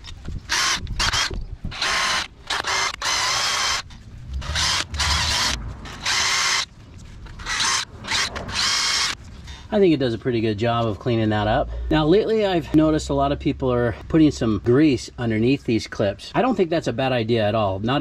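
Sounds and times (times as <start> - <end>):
drill spinning wire wheel brush: 0.5 - 6.7, 7.4 - 9.2.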